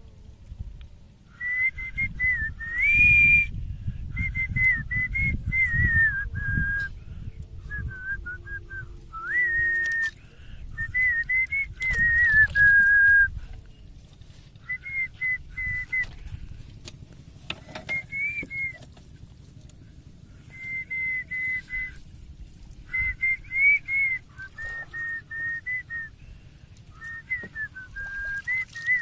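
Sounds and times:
low rumbling noise: 0.0 - 29.0
person whistling a tune: 1.3 - 3.6, 4.2 - 6.9, 7.7 - 10.2, 10.8 - 13.4, 14.6 - 16.1, 17.8 - 18.8, 20.5 - 22.0, 22.9 - 26.2, 26.9 - 29.0.

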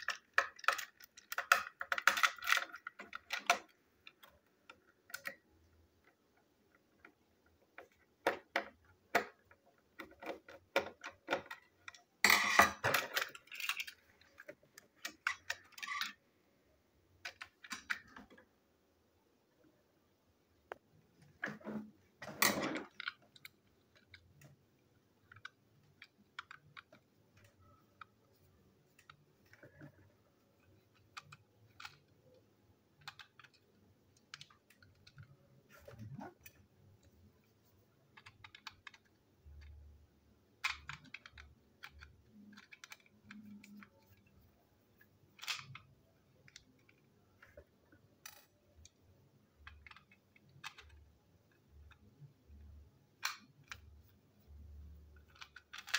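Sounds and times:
plastic toy clicks and taps: 0.0 - 5.5, 40.6 - 44.2, 53.2 - 55.9.

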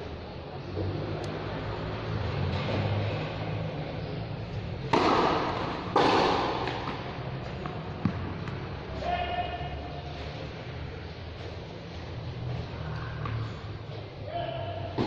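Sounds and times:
tennis racket hitting ball: 4.8 - 8.7.

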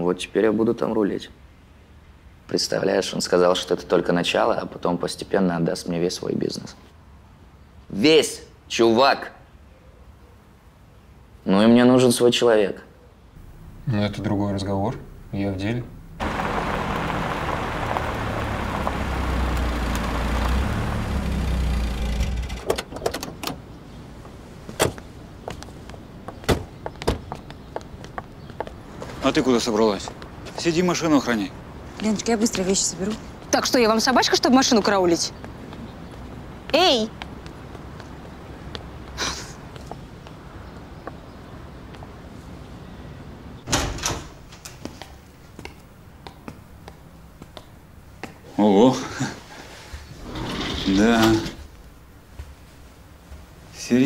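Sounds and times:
road noise: 13.1 - 54.0
car engine hum: 13.4 - 23.0.

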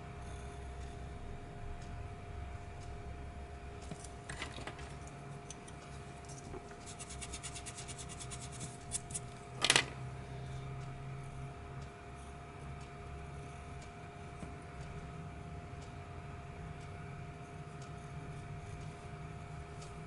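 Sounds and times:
faint steady hum: 0.0 - 20.0
eraser rubbing on paper: 6.8 - 9.3
pencil clattering on wooden desk: 9.6 - 10.0.

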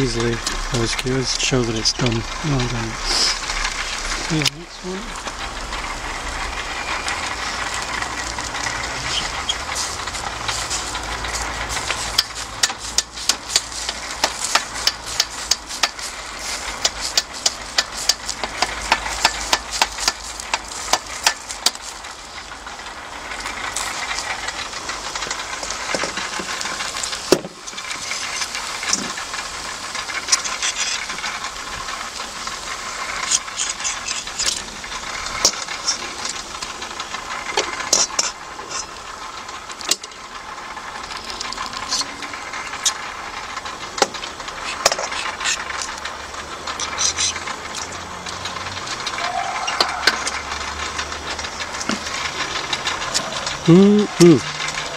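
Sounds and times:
fat sizzling on hot charcoal: 0.0 - 54.9
fork scraping metal skewers: 1.7 - 5.0, 30.2 - 31.3, 33.1 - 34.6.

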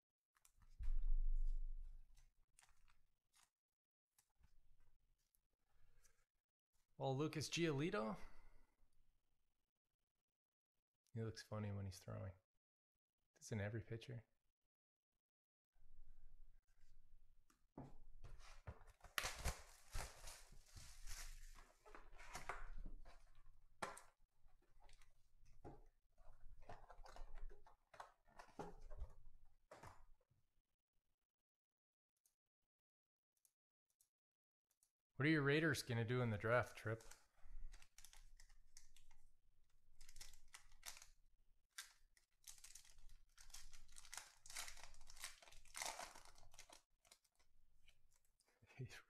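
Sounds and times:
box being handled and opened: 18.3 - 30.0
shrink wrap crinkling: 19.0 - 23.3, 40.0 - 47.5
foil wrapper tearing open: 41.8 - 47.2.

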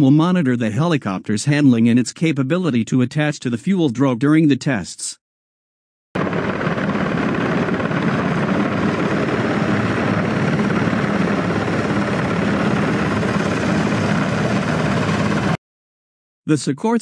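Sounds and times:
helicopter flying low: 6.2 - 15.6.

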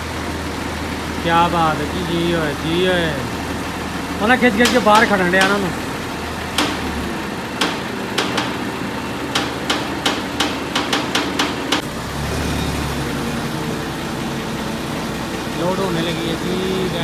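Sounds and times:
diesel engine running: 0.0 - 17.0
sharp knocks: 4.6 - 5.9, 6.5 - 11.9.

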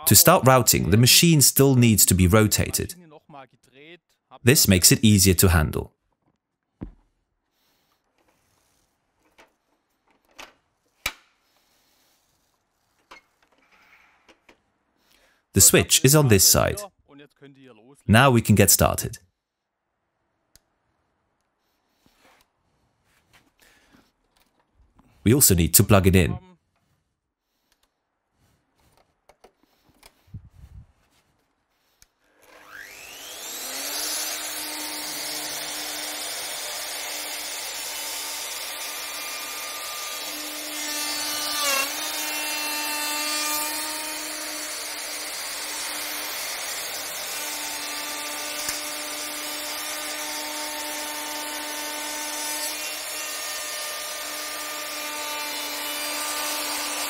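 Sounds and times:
router milling wood: 32.4 - 57.0.

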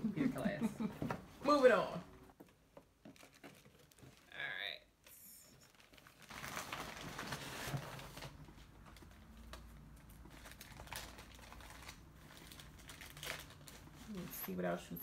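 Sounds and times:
tissue paper and plastic crinkling: 3.1 - 4.5, 5.5 - 15.0.

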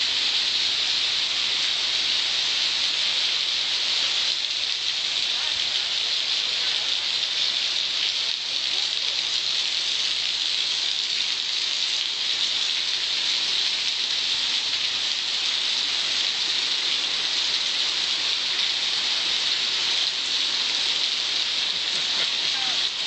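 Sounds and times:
heavy rain on paving: 0.0 - 23.0.

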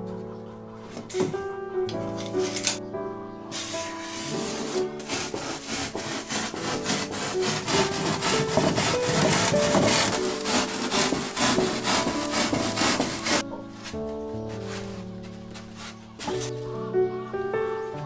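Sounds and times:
soft background music: 0.0 - 18.0
knife sawing through foam: 3.7 - 13.4, 14.5 - 16.5.

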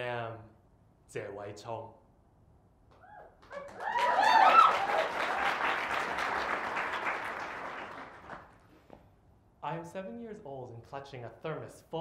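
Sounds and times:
whoops and cheers: 3.0 - 5.8
audience applauding: 3.4 - 8.6.

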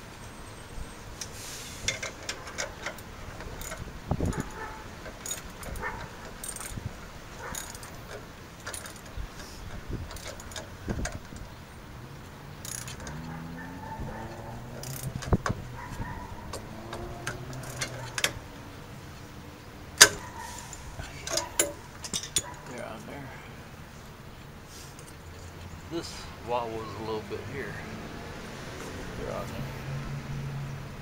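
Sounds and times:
metallic clicks of hardware handled: 1.2 - 11.6, 12.6 - 13.4, 14.3 - 15.6, 16.5 - 18.4, 21.1 - 22.6.

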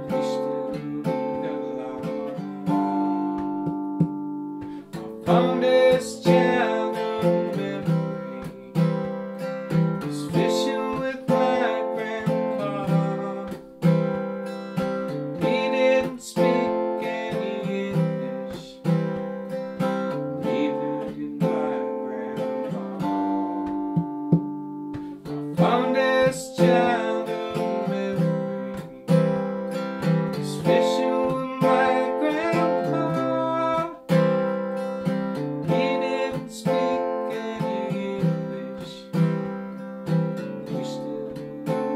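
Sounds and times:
man singing: 0.0 - 3.6, 4.8 - 14.2, 14.8 - 24.0, 25.2 - 34.4, 35.0 - 41.9
acoustic guitar strumming: 0.0 - 41.9.

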